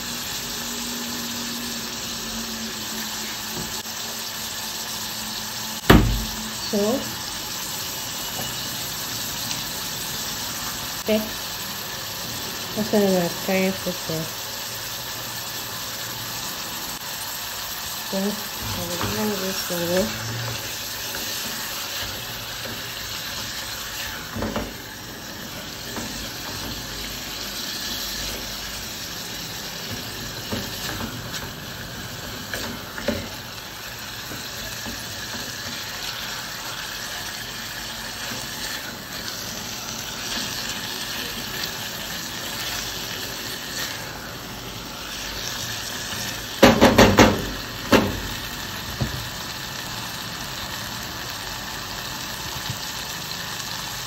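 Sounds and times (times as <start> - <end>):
meat and onions sizzling: 0.0 - 54.0
spatula stirring in pot: 18.4 - 37.0.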